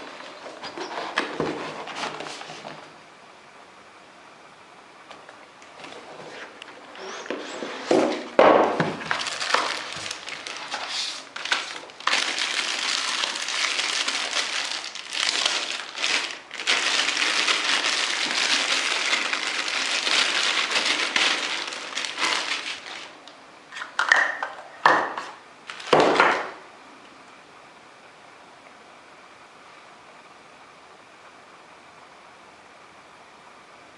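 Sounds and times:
plastic wrapping crinkling: 5.8 - 23.4, 25.6 - 26.5.

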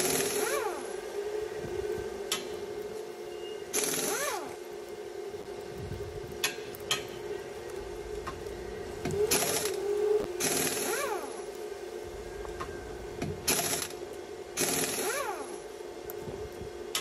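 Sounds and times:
small electric motor spinning: 0.0 - 1.0, 3.7 - 4.6, 9.1 - 11.6, 13.4 - 14.0, 14.6 - 15.7
steady hum: 0.0 - 17.0.

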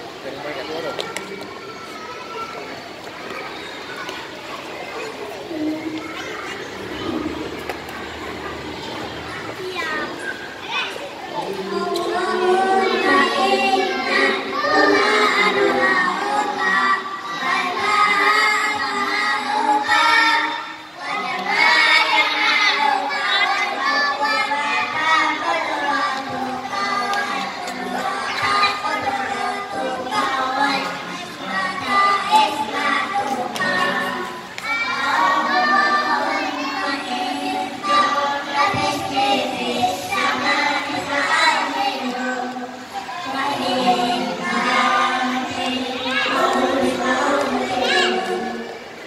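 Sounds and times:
children singing in unison: 4.9 - 49.0.

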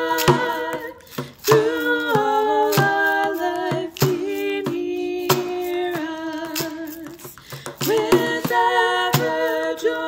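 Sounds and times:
frame drum strokes: 0.0 - 10.0
hand shaker: 0.0 - 10.0
women singing in harmony: 0.0 - 10.0.

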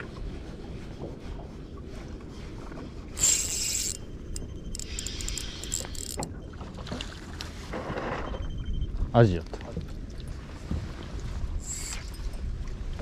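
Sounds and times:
fishing reel clicking: 3.2 - 6.3, 11.6 - 12.2
reel whirring hiss: 3.2 - 6.3, 11.6 - 12.3.

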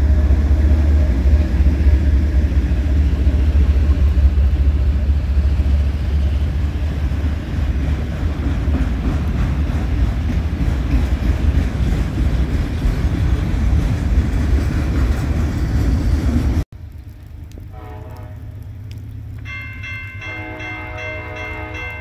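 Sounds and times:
train wheels rumbling on rail: 0.0 - 16.7
higher-pitched train horn: 17.7 - 18.6, 20.1 - 22.0
distant locomotive horns: 17.7 - 18.7, 19.5 - 22.0.

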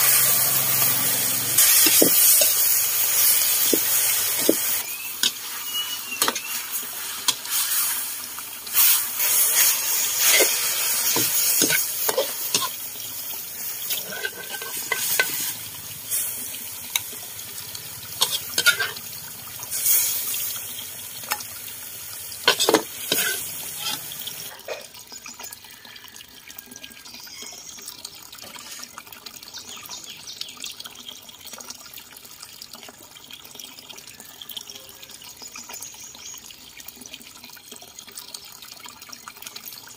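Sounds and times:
food sizzling in a wok: 0.0 - 25.9
metal ladle clanking and scraping: 9.2 - 12.8, 13.8 - 16.3, 18.2 - 19.0, 22.4 - 24.2.

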